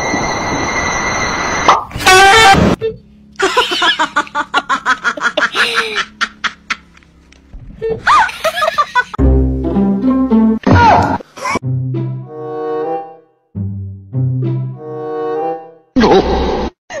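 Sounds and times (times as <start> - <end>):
person laughing hard: 3.4 - 7.0, 8.0 - 9.2, 16.0 - 17.0.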